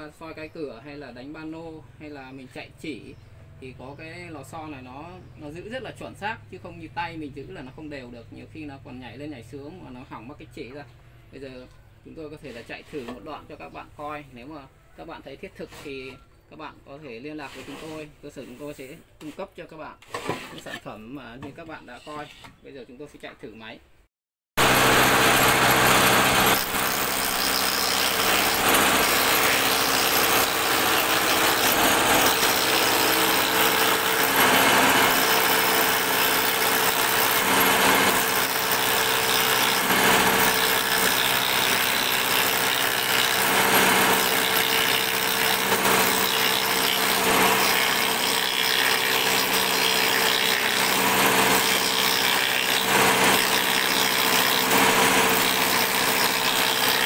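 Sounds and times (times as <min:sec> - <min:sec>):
woodworking cutter cutting board: 0:12.3 - 0:13.8, 0:17.3 - 0:19.4, 0:20.0 - 0:22.6, 0:24.6 - 0:57.0.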